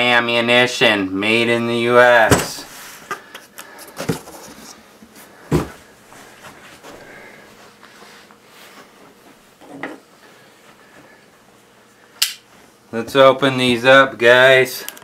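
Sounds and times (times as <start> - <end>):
boxes knocking on wooden table: 5.5 - 5.8.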